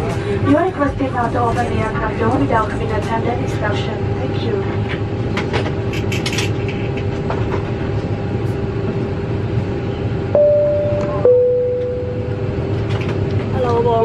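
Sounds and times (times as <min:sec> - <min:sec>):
steady cabin hum: 0:00.0 - 0:14.0
high-low cabin chime: 0:10.4 - 0:12.6.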